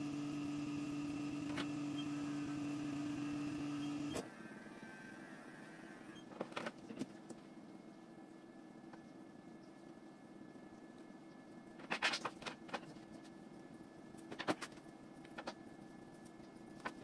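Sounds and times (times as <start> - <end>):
electric hair clipper humming: 0.0 - 4.0.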